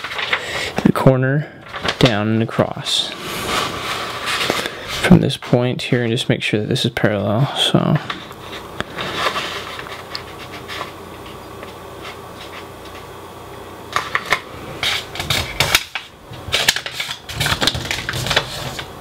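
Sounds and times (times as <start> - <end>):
paper crinkling: 0.0 - 0.7, 1.6 - 2.2, 3.1 - 5.6, 8.0 - 13.0, 14.0 - 19.0
paper rustling: 0.0 - 1.0, 1.6 - 5.6, 8.0 - 13.0, 14.0 - 19.0.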